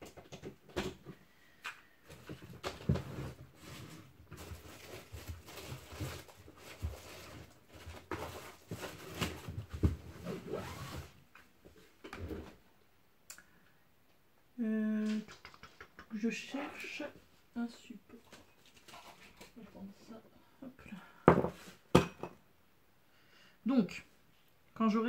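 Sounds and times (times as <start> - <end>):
objects knocking and rustling: 0.0 - 1.2, 2.0 - 10.4, 21.2 - 22.4.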